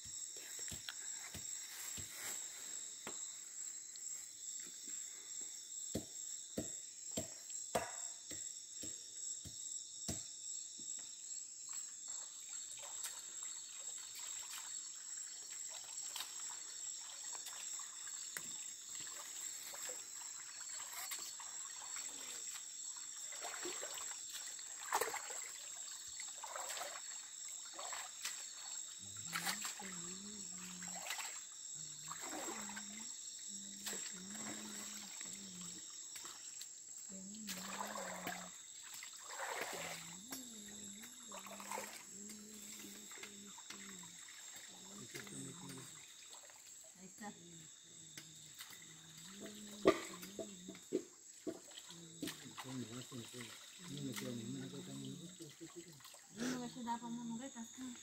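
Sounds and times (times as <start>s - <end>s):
insects calling in chorus: 0.0s - 58.0s
stream water trickling: 11.6s - 58.0s
splashing in muddy water: 12.7s - 46.8s, 48.2s - 56.8s.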